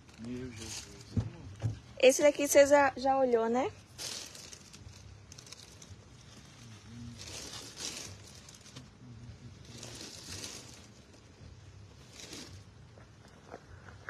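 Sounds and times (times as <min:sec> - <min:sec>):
plastic mailers crinkling: 0:00.1 - 0:01.2, 0:03.8 - 0:12.9.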